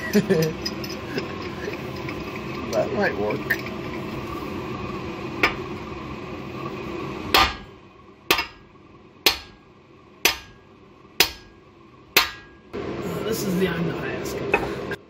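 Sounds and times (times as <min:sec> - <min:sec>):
hammer striking metal: 0:07.3 - 0:07.7, 0:08.3 - 0:09.6, 0:10.2 - 0:11.6, 0:12.2 - 0:12.7.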